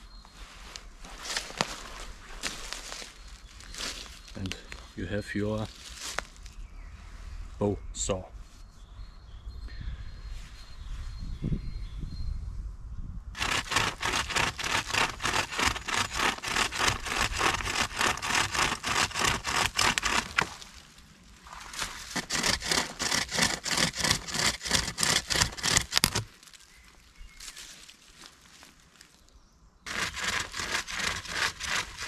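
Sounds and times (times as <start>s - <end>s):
chain saw rasping through log: 13.4s - 20.6s, 21.8s - 26.3s, 29.9s - 32.0s.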